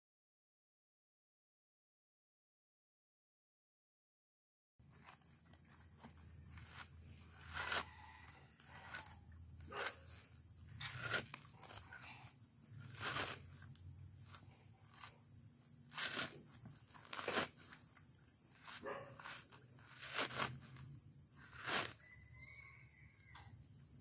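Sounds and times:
coconut husk ripping: 4.8s - 22.2s.

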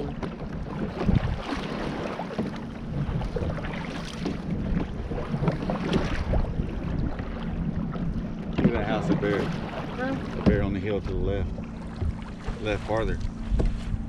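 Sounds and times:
wind buffeting microphone: 0.0s - 1.7s
canoe paddle splashing in water: 0.0s - 14.0s.

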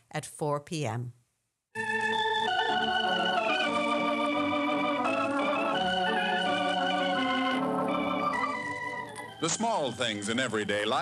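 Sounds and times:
organ playing held chords: 1.8s - 11.0s.

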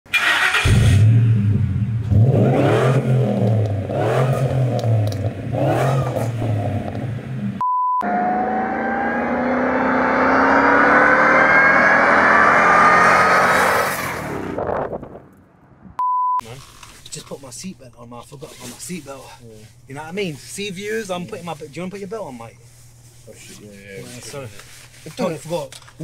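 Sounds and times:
pickup engine idling and revving: 0.5s - 14.3s
rising supercharger whine: 0.7s - 15.8s
steady beep: 7.6s - 8.2s, 16.0s - 16.4s.

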